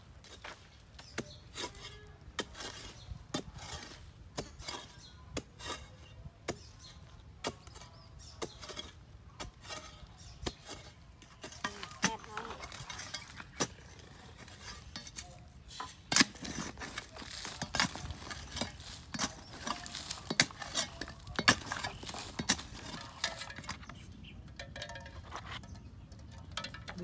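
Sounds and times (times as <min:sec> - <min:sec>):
metal bar striking hard soil: 0:00.2 - 0:27.0.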